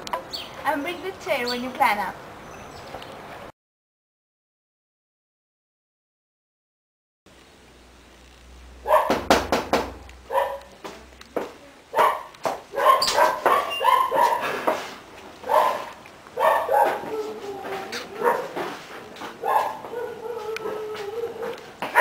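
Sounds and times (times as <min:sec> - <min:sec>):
dog barking: 0:08.8 - 0:09.3, 0:10.3 - 0:10.8, 0:11.9 - 0:14.7, 0:15.4 - 0:18.8, 0:19.4 - 0:22.0
knocking on glass-paned door: 0:09.0 - 0:10.0.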